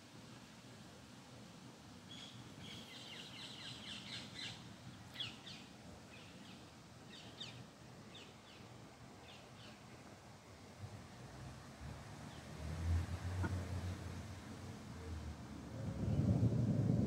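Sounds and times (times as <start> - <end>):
songbird singing: 2.1 - 10.1.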